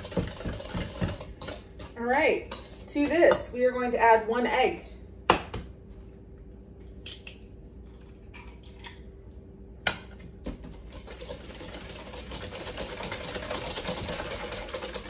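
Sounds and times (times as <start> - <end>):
whisk beating in metal bowl: 0.0 - 3.4, 10.7 - 15.0
whisk clinking on metal bowl: 0.0 - 3.5, 10.8 - 15.0.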